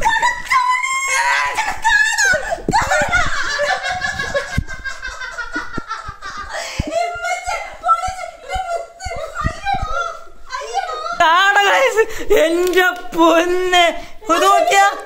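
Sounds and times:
woman shrieking and laughing: 0.0 - 10.9.

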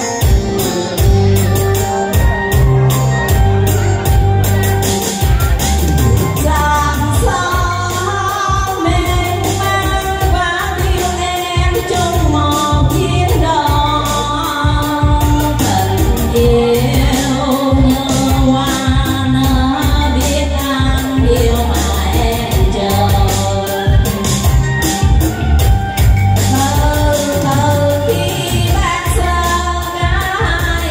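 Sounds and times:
backing music with beat: 0.0 - 30.9
woman singing into microphone: 5.8 - 25.1, 26.4 - 30.9.

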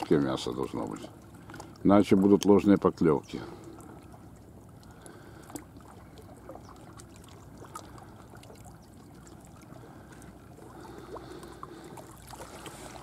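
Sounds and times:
outdoor background noise by water: 0.0 - 13.0.

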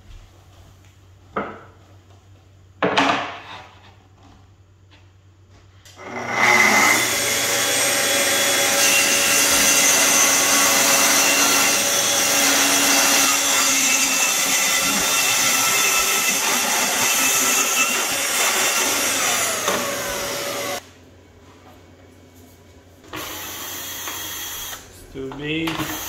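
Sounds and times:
track saw cutting: 5.9 - 20.8.

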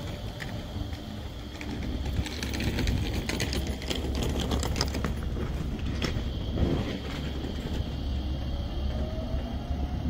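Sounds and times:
rapid mechanical clicks: 0.0 - 5.4
tram rumbling: 0.0 - 10.0.

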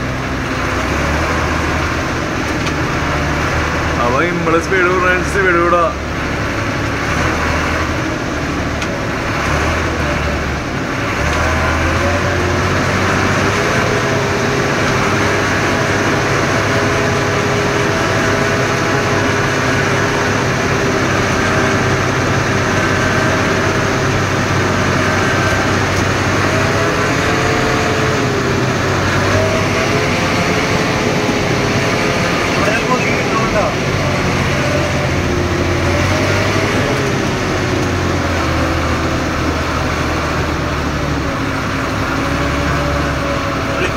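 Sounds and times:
engine whine: 0.0 - 43.9
vehicle engine and road noise: 0.0 - 43.9.

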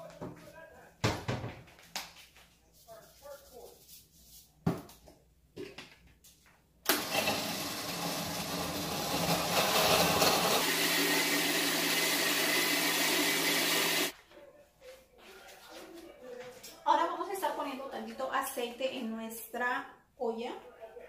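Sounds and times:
blender running: 6.9 - 14.1.

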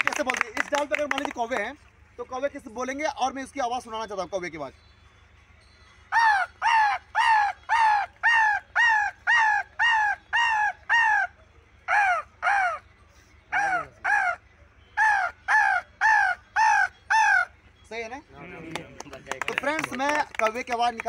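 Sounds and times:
man imitating crow caws: 13.5 - 14.4.

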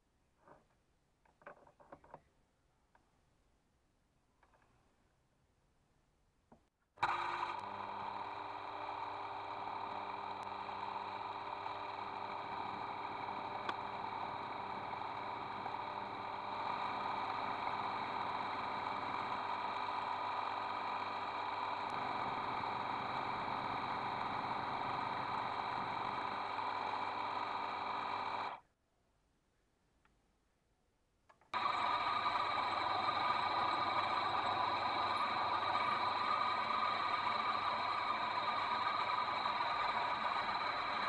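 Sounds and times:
cutter cutting metal rod: 7.0 - 28.6, 31.6 - 41.0
lathe motor whining: 7.0 - 28.6, 31.6 - 41.0.

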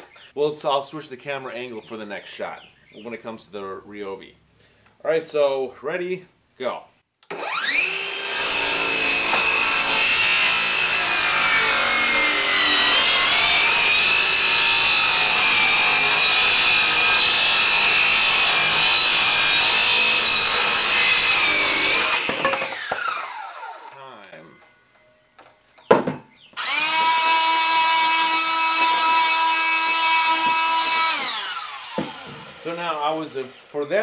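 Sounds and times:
circular saw cutting wood: 7.2 - 24.1, 26.6 - 34.0
saw motor winding down: 7.3 - 24.0, 26.6 - 33.1.

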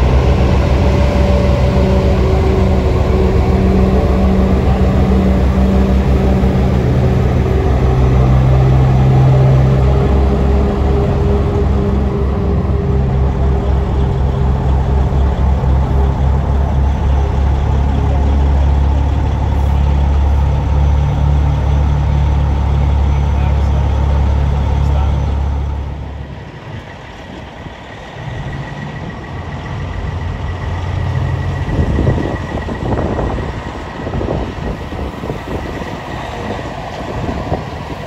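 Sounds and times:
truck diesel engine rumbling: 0.0 - 38.0.

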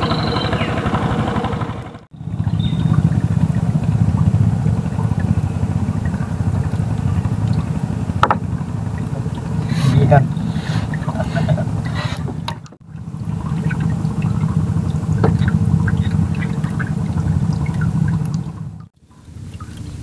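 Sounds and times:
small boat engine running: 0.0 - 20.0.

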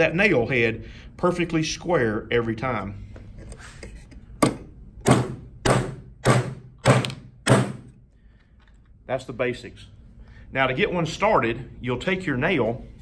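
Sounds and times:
hammer driving nail into wood: 4.4 - 8.0.

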